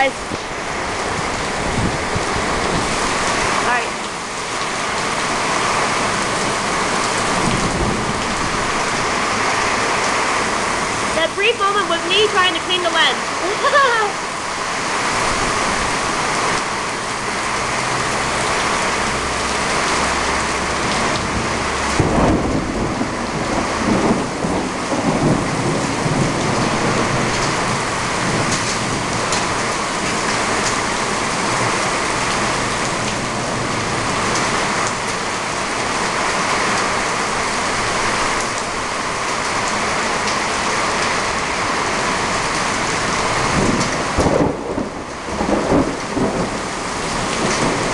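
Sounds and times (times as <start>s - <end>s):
thunder rumbling: 0.0s - 16.4s, 17.4s - 36.1s, 42.1s - 47.9s
heavy rain pouring: 0.0s - 47.9s
sharp thunder crack: 21.9s - 29.2s, 43.5s - 46.6s.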